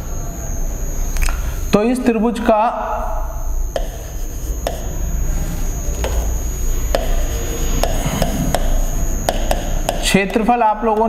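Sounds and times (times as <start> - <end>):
chalk tapping on blackboard: 3.7 - 5.0, 5.9 - 10.5
chalk scratching: 3.7 - 10.4.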